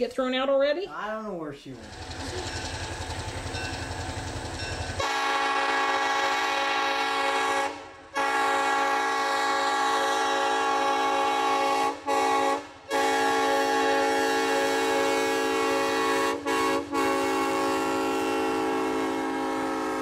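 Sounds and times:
locomotive air horn blasts: 0:05.0 - 0:20.0.

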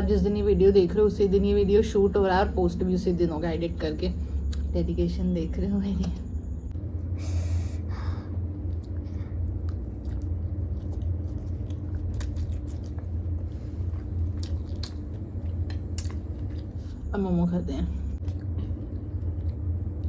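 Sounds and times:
steady low hum: 0:00.0 - 0:20.0
chewing and slurping noodles: 0:08.4 - 0:17.0.

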